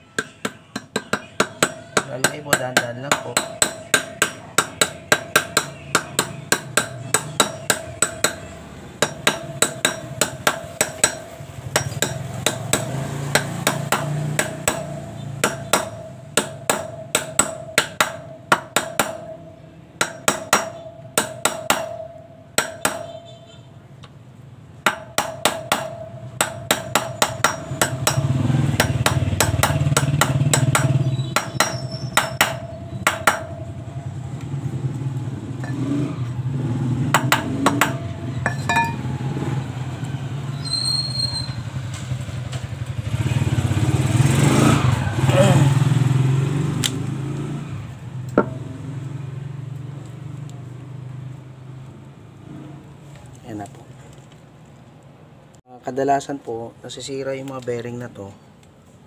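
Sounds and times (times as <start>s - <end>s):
hammer tapping metal with ringing: 0.0s - 23.5s, 24.8s - 34.6s, 35.6s - 36.2s, 37.1s - 39.2s, 48.3s - 49.0s.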